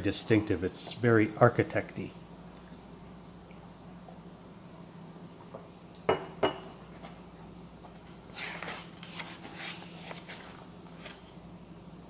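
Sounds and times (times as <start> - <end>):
book page rustling: 7.9 - 11.4.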